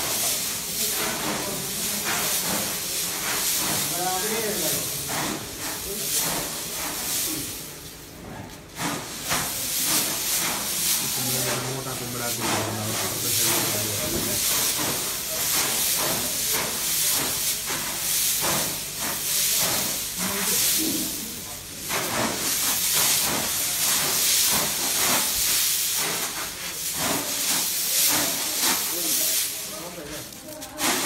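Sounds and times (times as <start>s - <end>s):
dry pods rustling and sliding: 0.0s - 31.0s.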